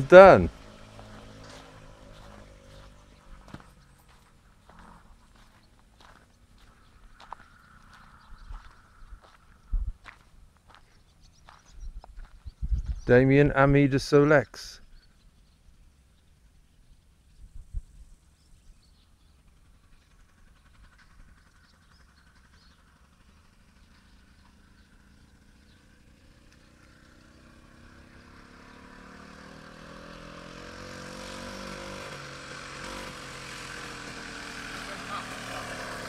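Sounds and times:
moped engine running: 0.0s - 12.5s, 18.7s - 36.0s.

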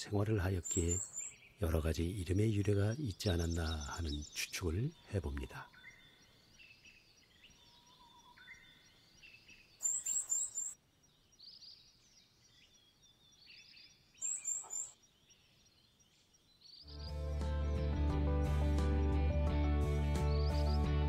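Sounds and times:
songbirds chirping: 0.0s - 21.0s.

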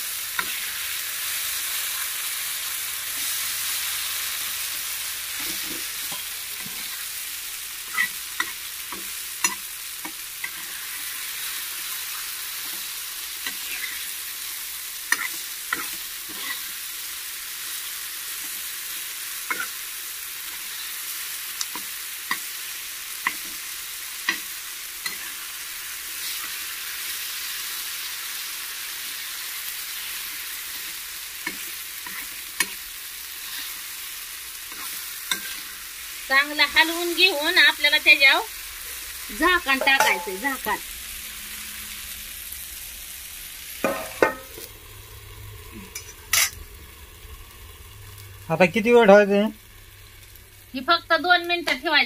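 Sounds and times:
mash sizzling in hot oil: 0.0s - 52.0s
metal spatula scraping pan: 7.9s - 11.6s, 12.6s - 14.1s, 15.1s - 16.8s, 34.7s - 35.8s, 39.6s - 40.8s, 43.8s - 44.7s, 45.8s - 46.6s.

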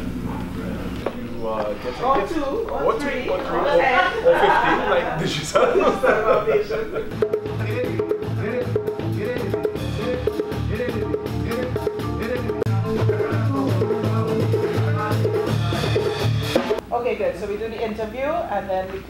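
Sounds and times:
bass guitar: 6.8s - 16.8s
hand drum: 6.9s - 16.8s.

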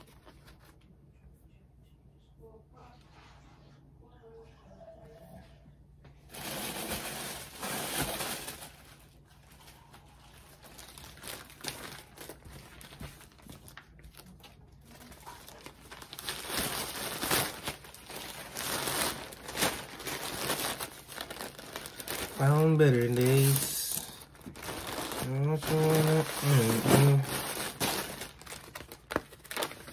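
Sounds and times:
plastic bags rustling and crinkling: 6.2s - 29.9s.

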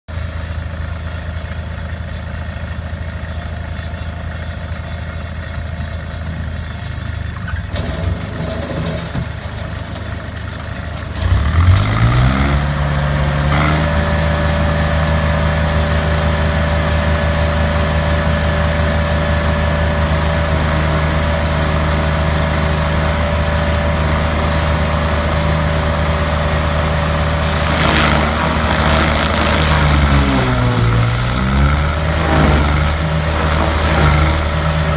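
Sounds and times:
stump grinder engine revving: 11.2s - 34.9s.

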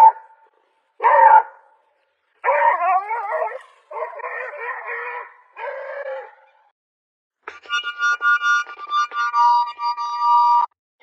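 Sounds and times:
puppy barking: 0.0s - 0.3s, 1.0s - 1.6s.

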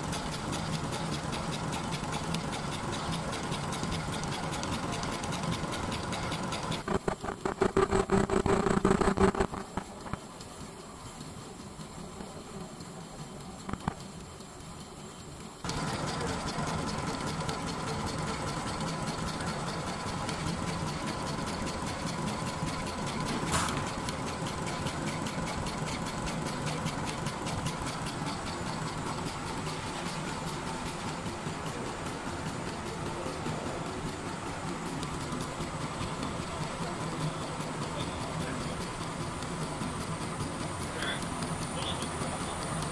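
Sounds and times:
sewing machine stitching: 0.0s - 10.2s, 15.6s - 42.9s.

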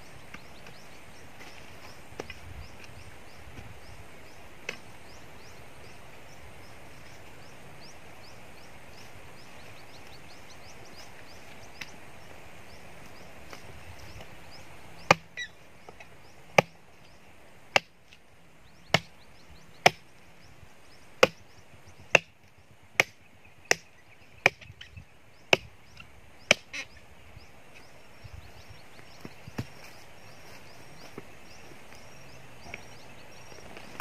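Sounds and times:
chopping tool striking tree stump: 15.1s - 15.4s, 16.5s - 16.8s, 17.7s - 18.0s, 18.9s - 19.1s, 19.8s - 20.0s, 21.2s - 21.4s, 22.1s - 22.4s, 23.0s - 24.7s, 26.5s - 26.7s.

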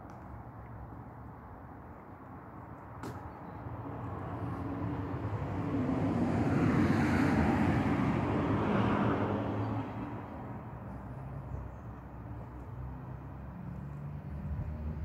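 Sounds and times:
vehicle passing by: 3.8s - 15.0s.

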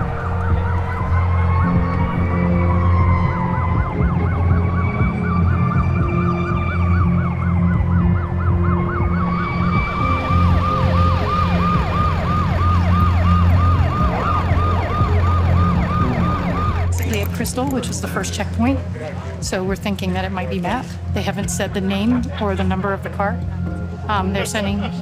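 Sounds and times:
siren yelp: 0.0s - 17.2s
siren wail: 0.0s - 17.7s
low drone: 0.0s - 19.5s.

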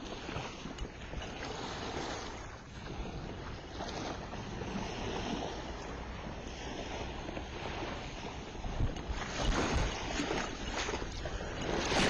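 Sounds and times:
small waves washing ashore: 0.0s - 12.0s
wind on microphone: 0.0s - 12.0s.

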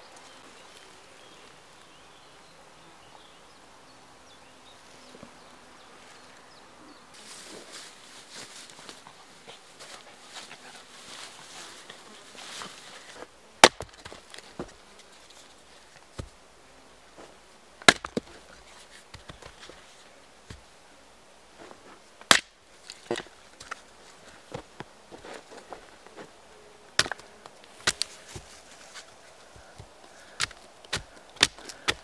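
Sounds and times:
hatchet striking log: 13.6s - 14.2s, 17.8s - 18.3s, 22.2s - 22.6s, 27.0s - 27.2s, 30.4s - 32.0s
wood knocking and cracking: 13.6s - 14.8s, 27.0s - 28.5s.

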